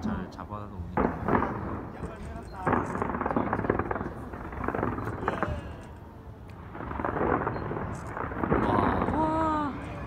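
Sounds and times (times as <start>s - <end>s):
distant fireworks bursts: 0.8s - 10.0s
fireworks crackling: 0.9s - 10.0s.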